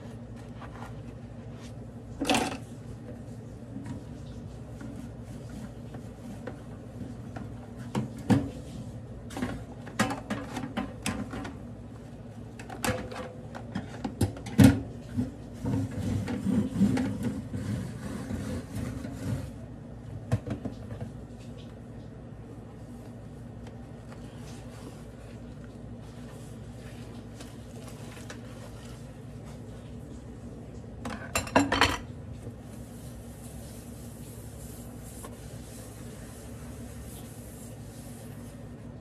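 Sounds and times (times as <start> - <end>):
sponge scrubbing plastic: 2.7 - 8.9, 15.1 - 19.6, 22.8 - 30.3, 32.4 - 39.0
dishes clinking in sink: 31.0 - 32.2.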